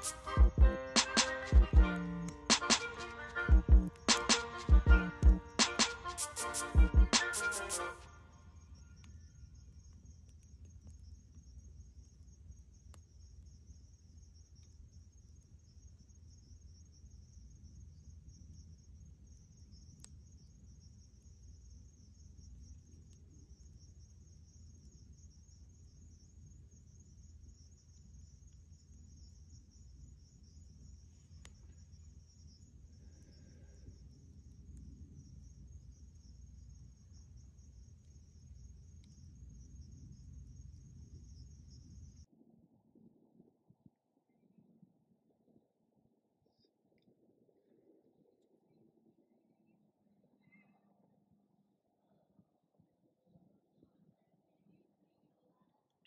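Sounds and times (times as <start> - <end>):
insects trilling: 0.0 - 42.3.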